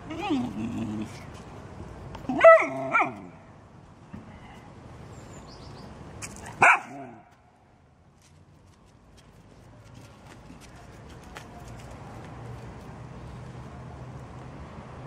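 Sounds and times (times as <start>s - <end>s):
dog barking: 2.3s - 3.3s, 6.6s - 7.2s.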